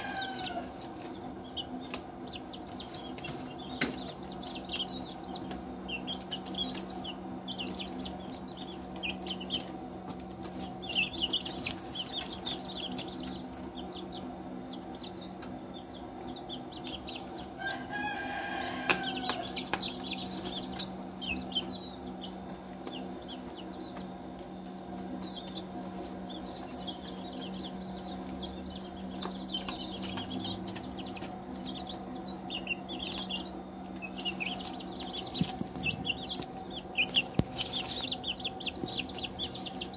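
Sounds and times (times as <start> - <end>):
chicks peeping: 0.0 - 39.9
steady low hum: 0.0 - 39.9.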